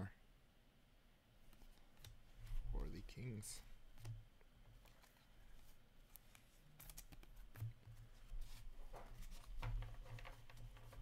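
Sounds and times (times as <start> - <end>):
trading cards rustling and clicking: 4.7 - 11.0.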